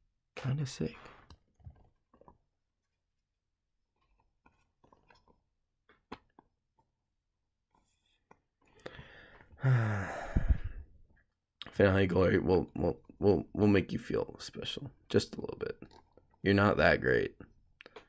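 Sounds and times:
loud breathy sigh: 8.9s - 10.9s.

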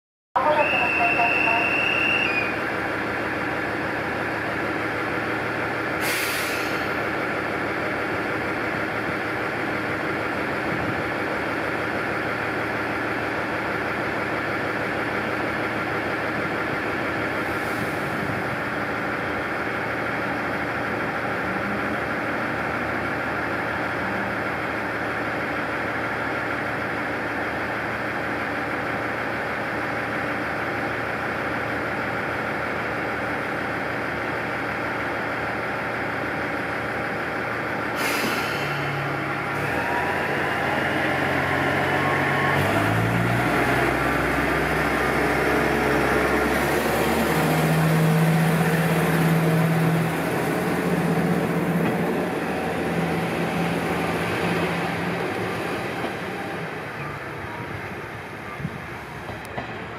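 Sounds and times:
diesel railcar idling: 0.4s - 59.9s
air release hiss: 6.0s - 7.0s, 38.0s - 38.9s.

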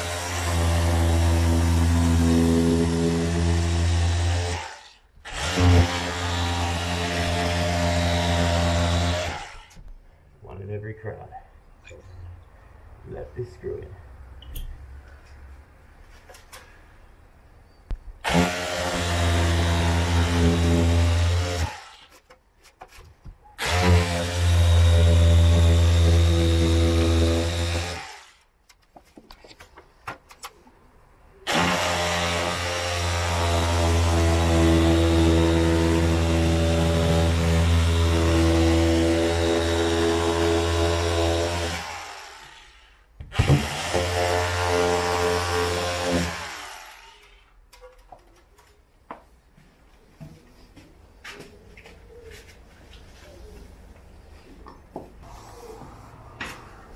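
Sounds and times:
power saw cutting plasterboard: 0.0s - 9.8s, 18.2s - 22.4s, 23.6s - 28.5s, 31.4s - 47.6s.

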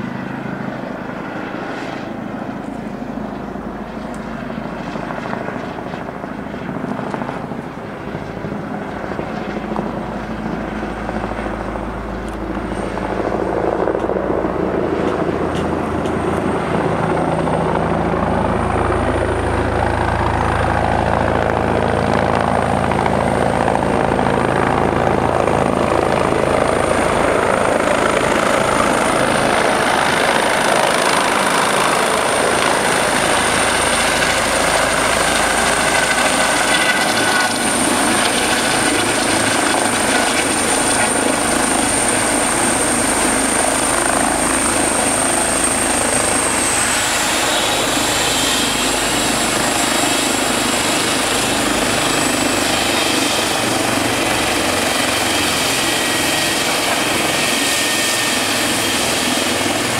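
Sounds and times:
helicopter rotor and engine: 0.0s - 59.9s
high steady whine: 9.9s - 59.9s.

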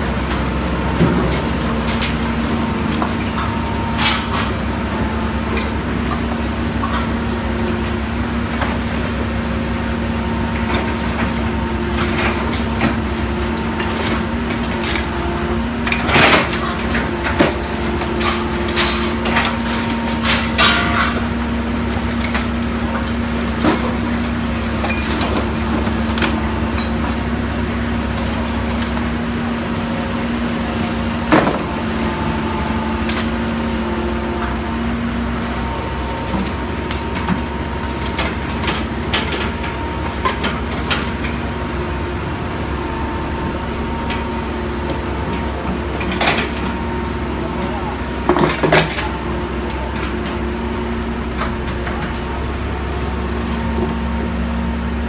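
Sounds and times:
excavator diesel engine running: 0.0s - 55.0s
scrap metal clanking: 15.9s - 21.4s.

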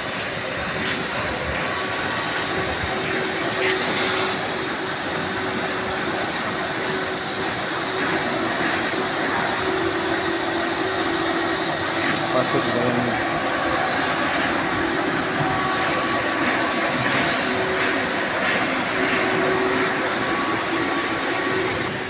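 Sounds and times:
even machinery hiss: 0.0s - 22.0s
low drone: 0.0s - 22.0s.

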